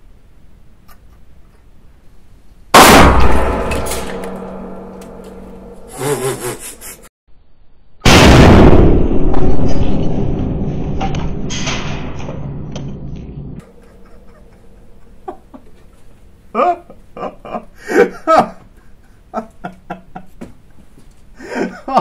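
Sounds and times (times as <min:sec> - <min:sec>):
small cannon blasts: 0:02.8 - 0:04.9, 0:08.0 - 0:10.6.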